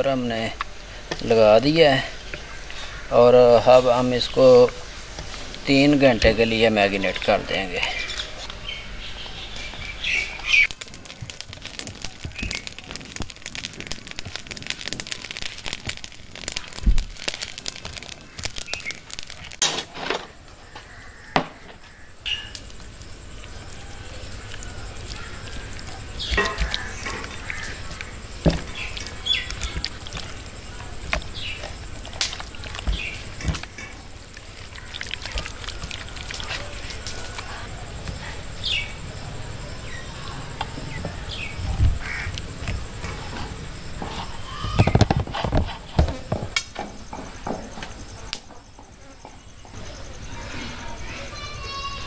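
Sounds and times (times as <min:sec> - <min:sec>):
birds chirping: 0:01.2 - 0:19.6, 0:20.4 - 0:45.0
hands squelching marinade into chicken: 0:24.1 - 0:37.5.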